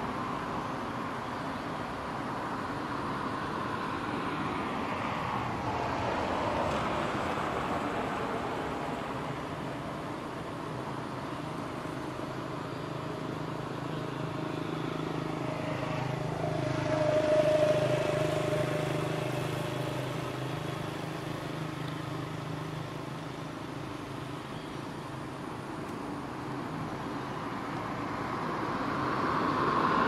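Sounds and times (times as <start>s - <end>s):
vehicle engine passing: 13.4s - 22.9s.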